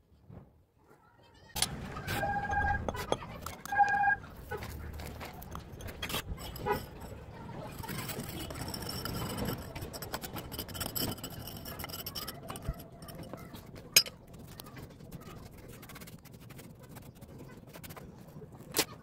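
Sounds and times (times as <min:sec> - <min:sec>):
rod clinking against metal: 0:05.4 - 0:14.2.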